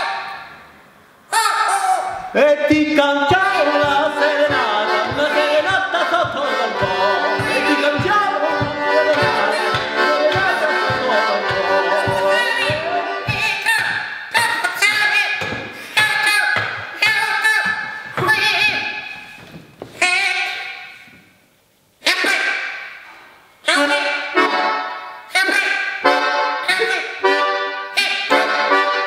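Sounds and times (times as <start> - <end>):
man singing: 2.3 - 15.4
button accordion: 3.3 - 14.5, 24.3 - 25.1, 26.0 - 29.0.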